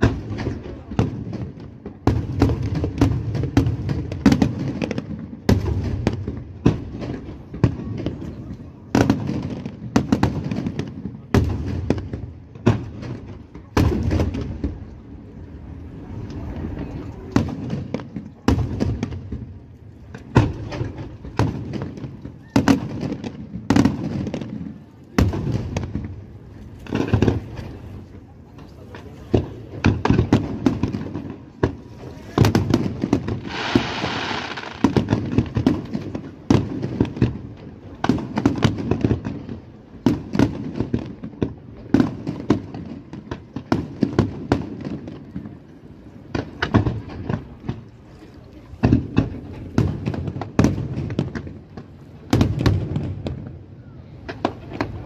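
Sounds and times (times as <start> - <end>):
fireworks bangs and booms: 0.0 - 48.0, 48.6 - 55.0
fireworks hissing: 32.4 - 35.7.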